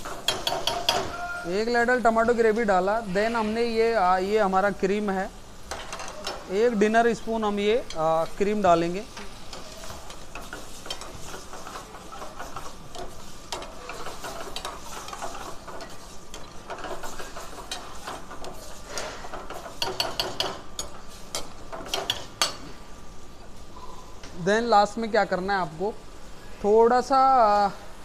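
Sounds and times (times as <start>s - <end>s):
ladle scraping thick sauce in pan: 9.2s - 20.4s.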